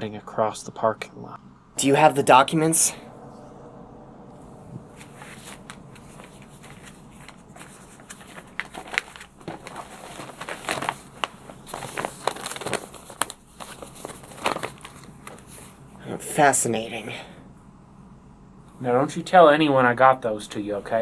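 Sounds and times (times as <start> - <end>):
paper rustling and crinkling: 7.6 - 15.7.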